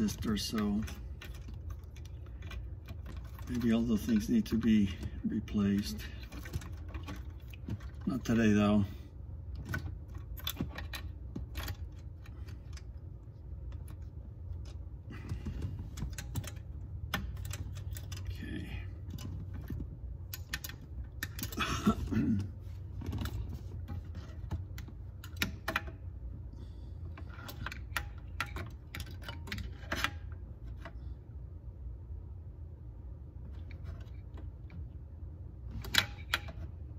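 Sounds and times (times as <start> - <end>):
plastic connectors clicking and rattling: 15.4 - 18.3.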